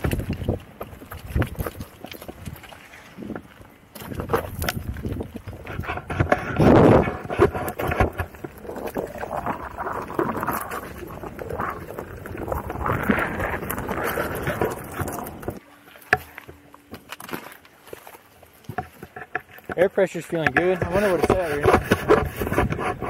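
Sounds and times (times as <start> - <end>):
tyre rolling over gravel: 3.2 - 15.6.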